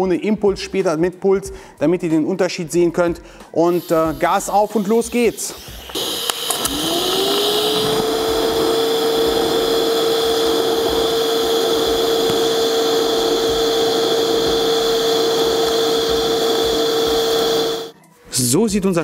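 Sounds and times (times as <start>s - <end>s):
welding arc humming and hissing: 3.7s - 17.9s.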